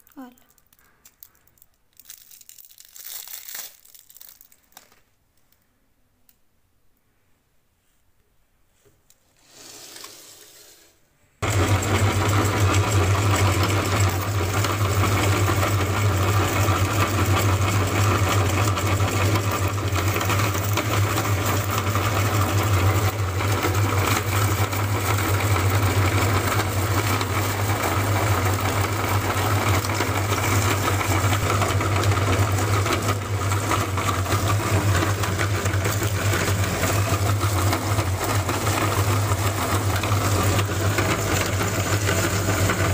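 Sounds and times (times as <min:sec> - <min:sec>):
hard candy being ground: 0:00.0 - 0:05.0, 0:09.4 - 0:42.9
electric meat grinder humming: 0:11.4 - 0:42.9.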